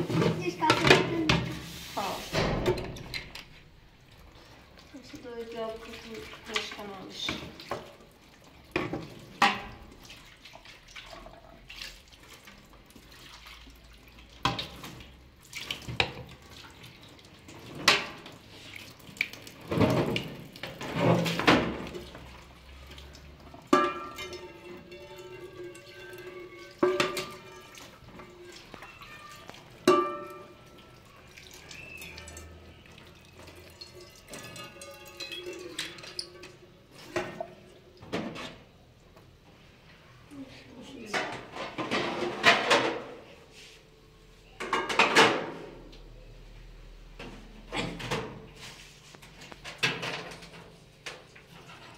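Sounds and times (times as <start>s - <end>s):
dishes clinking against sink: 0.0s - 1.6s, 8.7s - 9.9s, 17.6s - 18.3s, 23.6s - 31.0s, 31.6s - 38.7s, 41.0s - 43.3s, 44.5s - 45.8s, 47.2s - 48.5s, 49.4s - 51.9s
tap water running: 0.0s - 39.3s.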